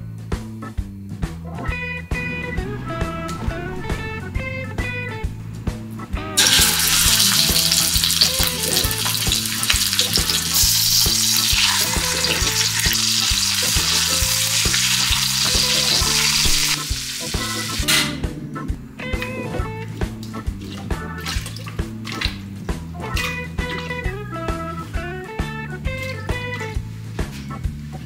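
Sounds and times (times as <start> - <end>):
background music with bass line: 0.0 - 28.0
pork sizzling in a frying pan: 6.4 - 18.0.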